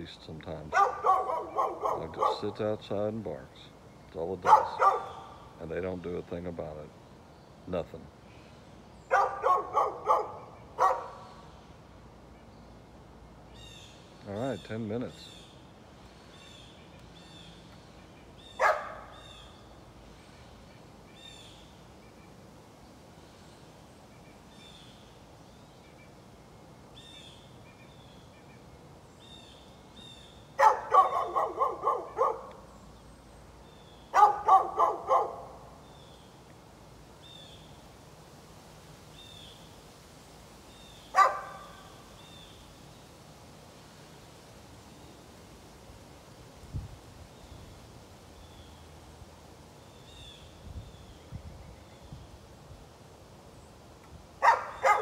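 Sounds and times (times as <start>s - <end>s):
dog barking: 0.7s - 2.6s, 4.4s - 5.4s, 9.1s - 11.2s, 18.6s - 19.2s, 30.6s - 32.6s, 34.1s - 35.6s, 41.1s - 41.8s, 54.4s - 55.0s.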